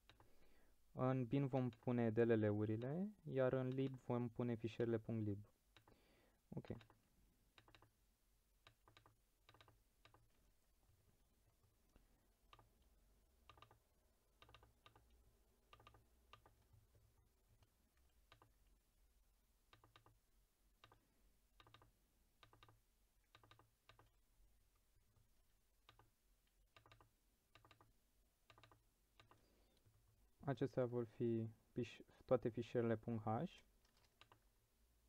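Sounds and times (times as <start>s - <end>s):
computer mouse and keys clicking: 0.0s - 0.4s, 1.5s - 2.0s, 3.6s - 4.1s, 5.7s - 6.0s, 6.6s - 8.0s, 8.6s - 10.4s, 11.8s - 18.8s, 19.7s - 20.2s, 20.8s - 30.2s, 33.7s - 34.5s.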